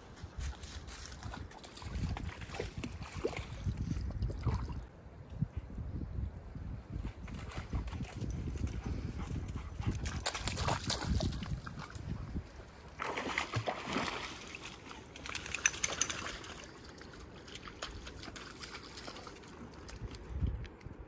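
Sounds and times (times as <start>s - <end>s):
water sloshing and splashing: 0.6s - 4.9s, 10.0s - 20.5s.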